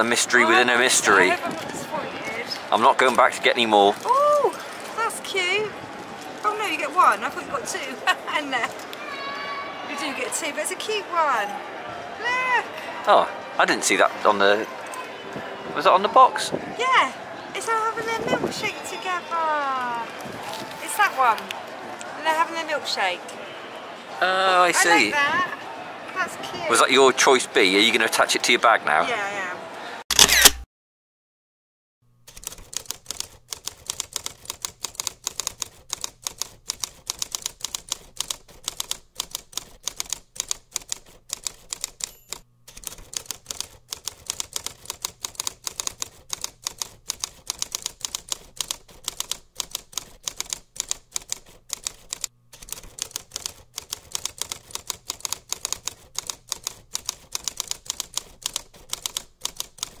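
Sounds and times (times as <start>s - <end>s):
typewriter keys clacking: 32.3s - 60.0s.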